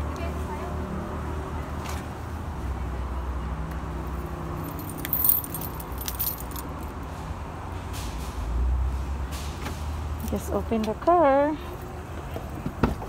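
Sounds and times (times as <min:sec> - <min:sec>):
keys jangling: 0:04.6 - 0:06.9.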